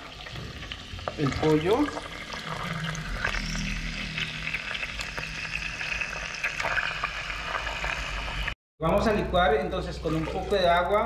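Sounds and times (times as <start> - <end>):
chicken sizzling in hot oil: 0.0 - 8.6.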